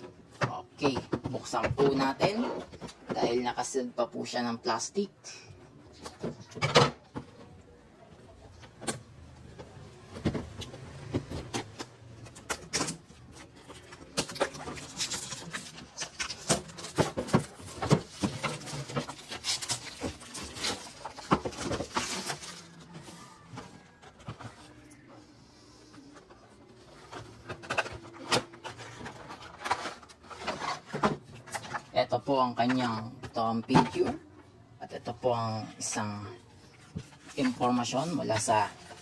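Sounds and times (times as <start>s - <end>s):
shrink-wrap crinkling: 12.2s - 24.8s.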